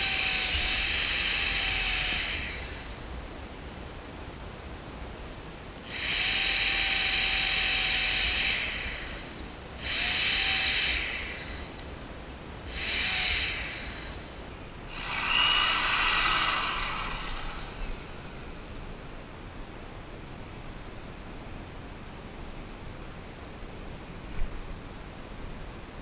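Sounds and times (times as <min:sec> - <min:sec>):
electric drill boring through plastic: 0:00.0 - 0:03.2, 0:05.9 - 0:12.0, 0:12.7 - 0:18.7.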